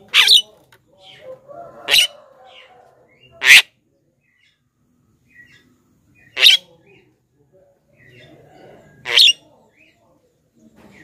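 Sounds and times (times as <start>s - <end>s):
myna bird calling: 0.0s - 3.7s, 5.3s - 7.0s, 9.0s - 9.5s.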